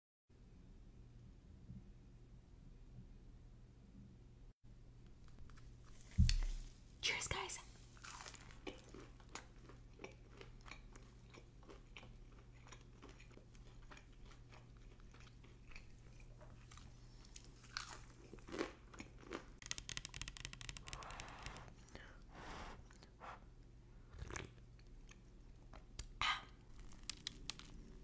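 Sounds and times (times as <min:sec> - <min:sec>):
chewing and crunching food: 0:07.8 - 0:22.2, 0:24.0 - 0:28.0
person sipping soup: 0:20.7 - 0:25.3.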